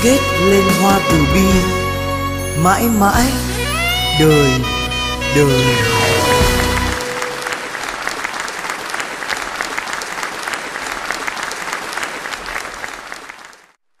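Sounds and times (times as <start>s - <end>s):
held music note: 0.0s - 8.1s
audience applauding: 5.8s - 13.8s.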